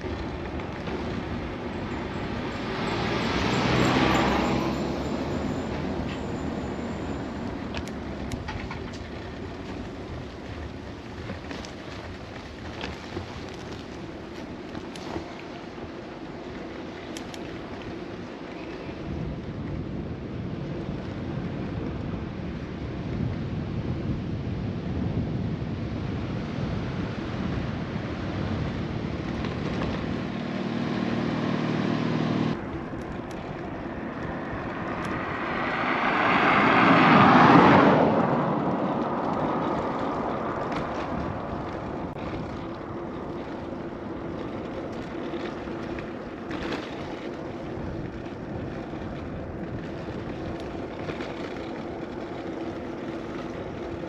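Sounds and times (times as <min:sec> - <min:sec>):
rushing noise with low hum: 0:00.0 - 0:54.0
vehicle passing by: 0:00.8 - 0:07.9, 0:28.8 - 0:33.0, 0:33.6 - 0:54.0.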